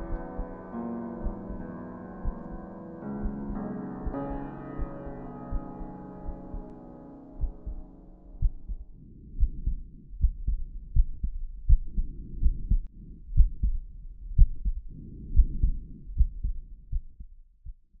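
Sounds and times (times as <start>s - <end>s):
heartbeat thumps: 1.2s - 1.6s, 2.2s - 4.2s, 7.4s - 7.8s, 8.4s - 17.9s.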